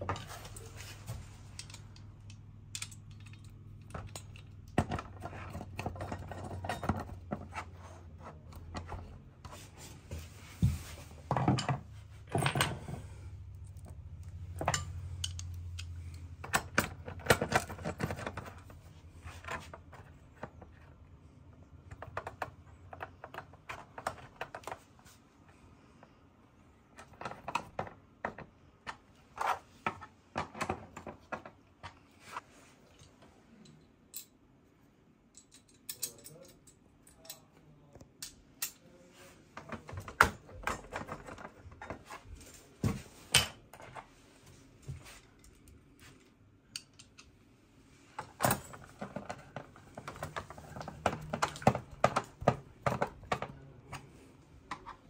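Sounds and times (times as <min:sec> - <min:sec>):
metal clicks and clinks: 0:01.6 - 0:04.8, 0:14.2 - 0:16.8, 0:35.3 - 0:37.5.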